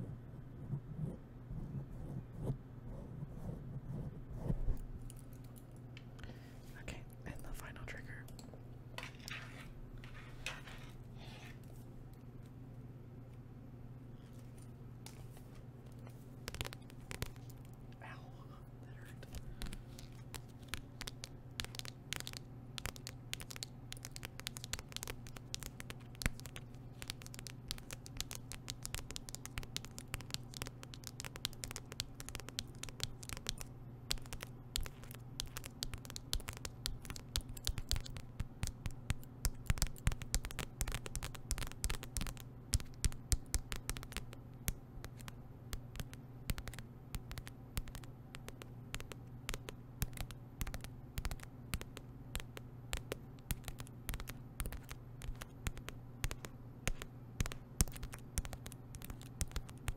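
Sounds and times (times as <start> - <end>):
metal tips tapping on paper: 16.0 - 17.7, 19.3 - 59.9.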